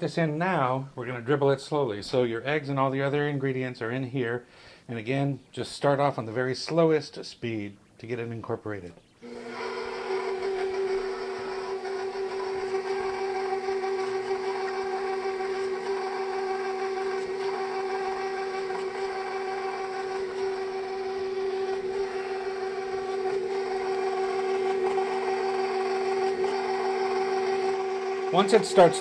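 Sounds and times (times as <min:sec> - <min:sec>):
stand mixer motor whine: 0:09.2 - 0:29.0.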